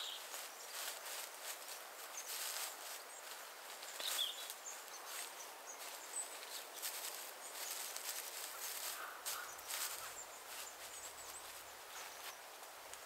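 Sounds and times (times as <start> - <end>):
bird chirps: 0.0 - 0.8, 3.0 - 7.8
straw thatch rustling and crackling: 0.0 - 13.0.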